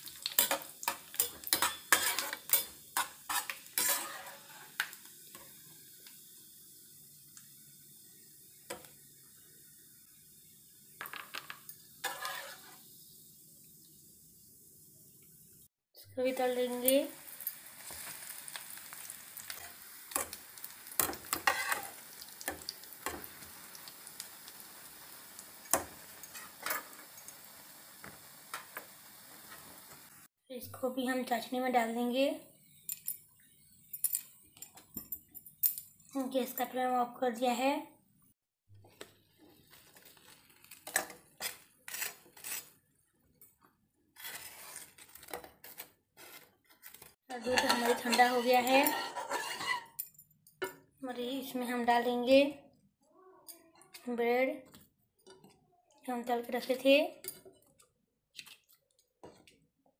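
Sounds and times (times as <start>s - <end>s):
bread sizzling in hot oil: 0.0s - 30.3s, 38.8s - 42.9s, 47.0s - 50.0s
metal spatula clicks and scrapes: 0.1s - 5.4s, 11.4s - 12.8s, 19.5s - 23.2s, 40.6s - 42.8s, 47.4s - 50.8s.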